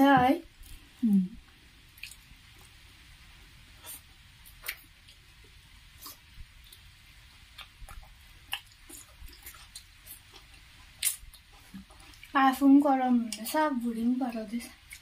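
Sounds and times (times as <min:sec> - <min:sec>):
chewing and lip smacks: 0:02.0 - 0:02.8, 0:07.5 - 0:12.4.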